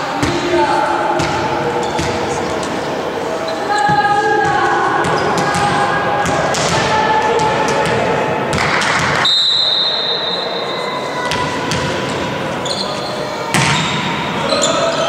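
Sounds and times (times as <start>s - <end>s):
volleyball bouncing on floor: 1.2s - 2.3s, 3.9s - 9.3s.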